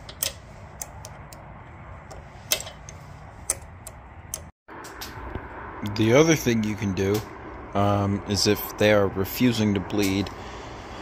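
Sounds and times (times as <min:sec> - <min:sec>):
socket wrench clicking: 0:00.0 - 0:04.5.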